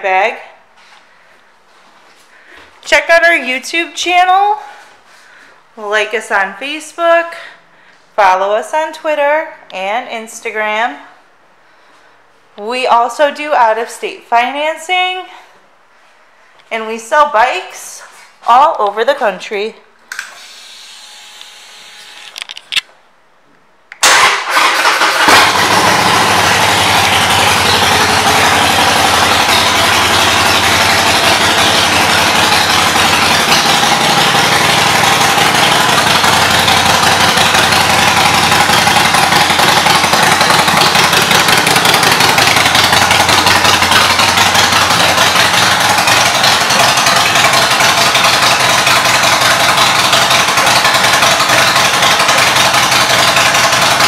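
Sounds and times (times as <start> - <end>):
motorcycle engine starting and idling: 24.0 - 54.0.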